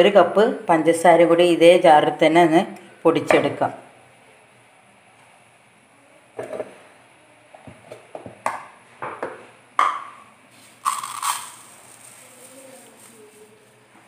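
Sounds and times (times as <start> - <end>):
sugar poured into steel jar: 10.5 - 13.7.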